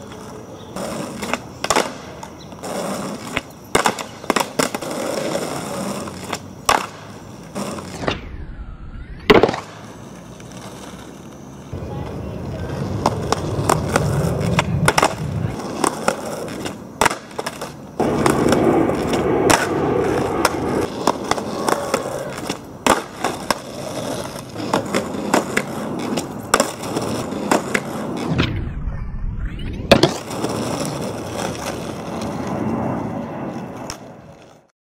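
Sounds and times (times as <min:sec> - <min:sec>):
skateboard popping clacks: 0:00.0 - 0:08.2, 0:09.3 - 0:11.4, 0:12.0 - 0:28.3, 0:29.9 - 0:32.6
skateboard wheels rolling on asphalt: 0:00.0 - 0:28.7, 0:29.8 - 0:34.7
skateboard slapping down on landing: 0:00.9 - 0:08.2, 0:09.3 - 0:09.8, 0:13.0 - 0:28.5, 0:29.9 - 0:32.4.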